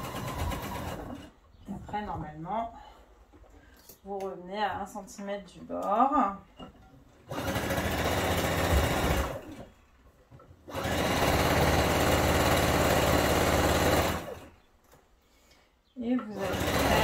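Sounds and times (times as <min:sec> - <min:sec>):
sewing machine stitching fabric: 0:00.0 - 0:01.4, 0:07.3 - 0:09.7, 0:10.7 - 0:14.5, 0:16.4 - 0:17.0.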